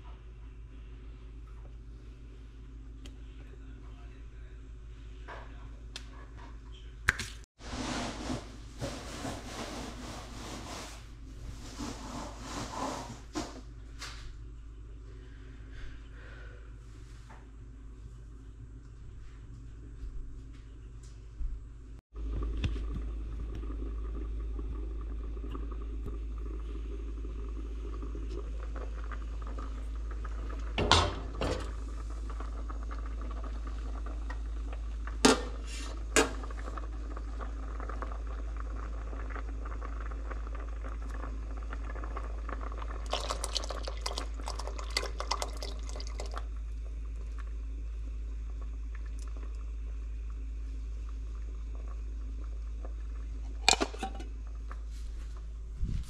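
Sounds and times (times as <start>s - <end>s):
pot boiling and bubbling: 7.5s - 20.5s, 21.2s - 56.0s
can opening and pouring: 53.5s - 54.3s.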